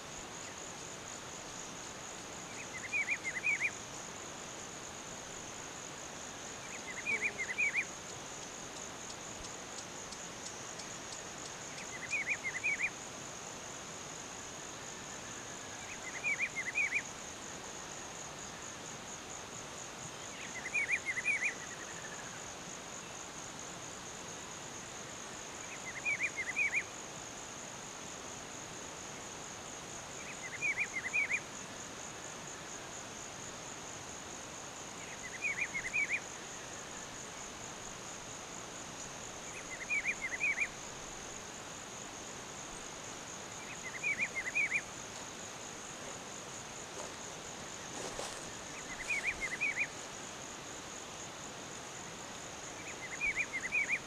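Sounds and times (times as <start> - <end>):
high insect buzz: 0.0 - 54.0.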